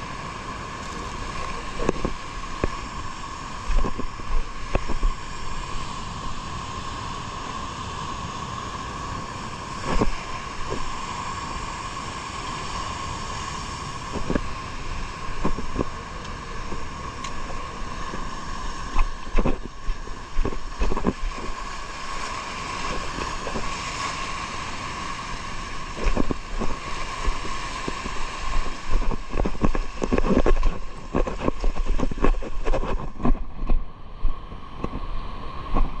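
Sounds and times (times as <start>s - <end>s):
water noise: 0.0s - 36.0s
wind buffeting microphone: 0.8s - 6.6s, 9.5s - 11.6s, 13.2s - 36.0s
boat motor humming: 13.1s - 34.0s.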